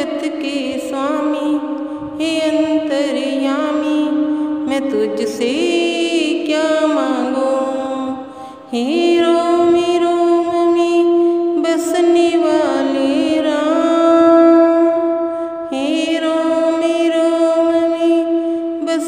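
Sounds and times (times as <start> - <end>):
woman singing devotional song: 0.0 - 19.0.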